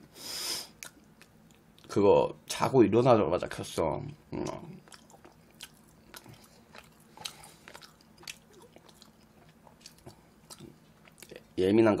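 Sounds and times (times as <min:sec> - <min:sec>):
chewing and mouth smacks: 0:00.8 - 0:02.0, 0:04.4 - 0:11.4.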